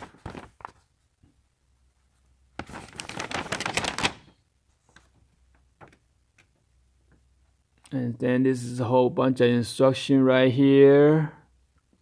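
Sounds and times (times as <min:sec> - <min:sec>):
paper rustling and crackling: 0:00.0 - 0:01.0, 0:02.6 - 0:06.0.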